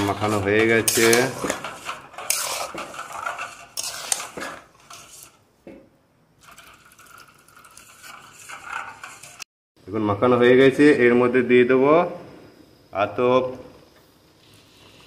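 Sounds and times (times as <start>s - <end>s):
metal spatula scraping steel pan: 0.0s - 5.4s, 6.4s - 9.5s.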